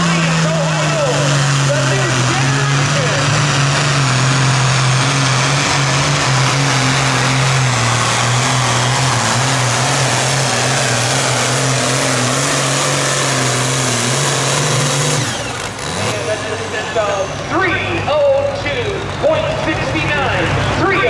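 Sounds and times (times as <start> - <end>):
tractor diesel engine under load: 0.0 - 21.0.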